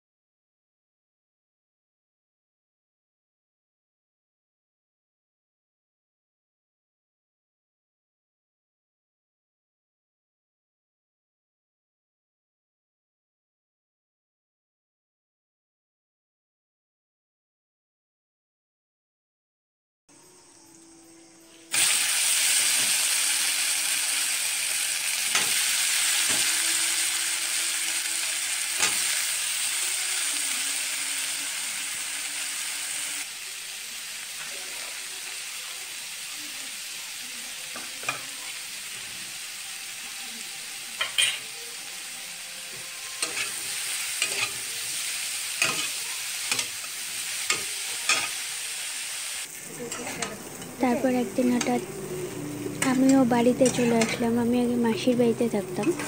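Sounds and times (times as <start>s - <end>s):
vegetables sizzling in oil: 20.3s - 56.0s
metal spatula scraping pan: 25.1s - 29.7s, 40.9s - 48.5s, 52.7s - 54.4s.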